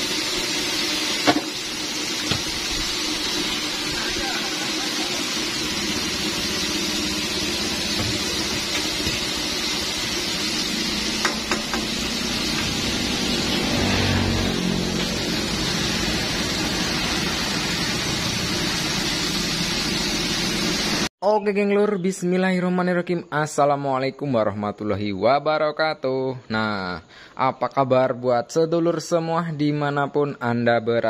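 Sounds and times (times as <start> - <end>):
oil sizzling and bubbling: 0.0 - 21.1
low hum: 5.4 - 19.8.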